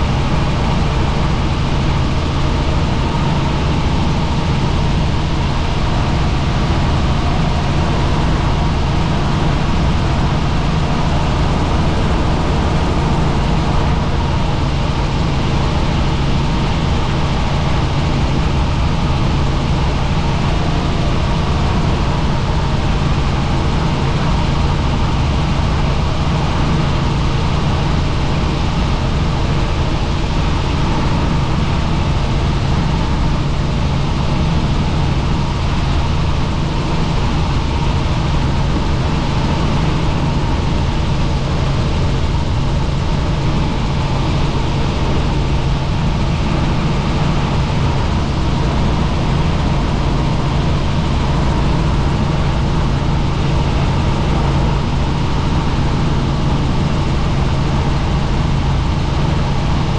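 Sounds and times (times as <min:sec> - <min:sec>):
wide rushing noise: 0:00.0 - 0:34.2
helicopter engine and rotor hum: 0:00.0 - 0:59.9.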